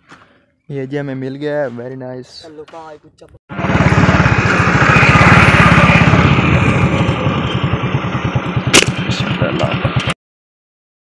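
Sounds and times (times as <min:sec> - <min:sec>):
engine running: 0:03.5 - 0:10.2
sharp click: 0:08.8 - 0:09.0.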